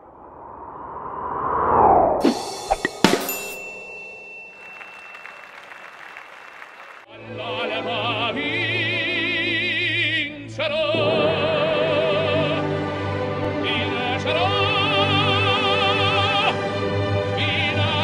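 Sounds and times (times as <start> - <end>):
operatic singing with vibrato: 6.9 - 18.0
orchestral music: 10.9 - 18.0.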